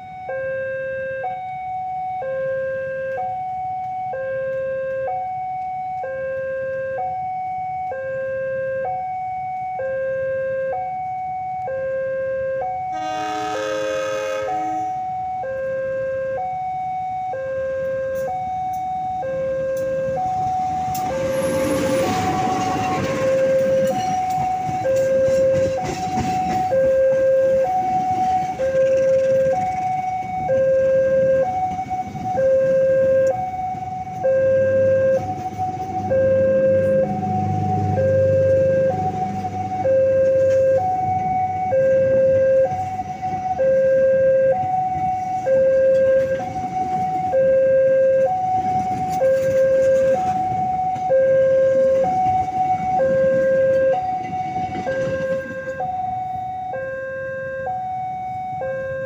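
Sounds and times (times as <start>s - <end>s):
level crossing two-tone alarm: 0.0s - 59.0s
train coaches rumbling past: 12.9s - 15.2s, 19.3s - 56.5s.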